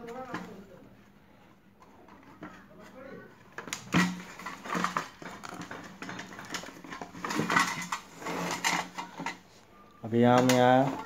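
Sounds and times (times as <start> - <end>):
metal and plastic parts clunking: 3.4 - 9.4, 10.2 - 11.0.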